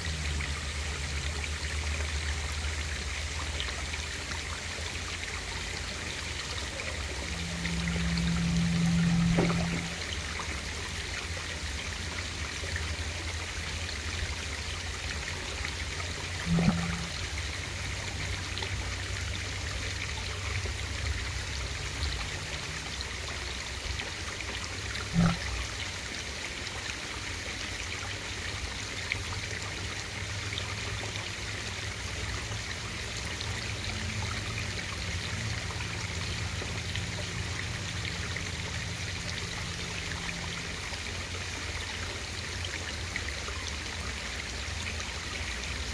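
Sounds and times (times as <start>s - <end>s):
low steady hum: 0.0s - 26.4s
underwater flowing water: 0.0s - 45.9s.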